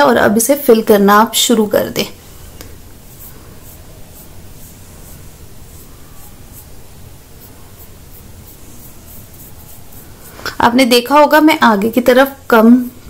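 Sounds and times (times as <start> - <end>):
pencil scratching: 2.2 - 10.6
steady hiss: 2.2 - 10.8.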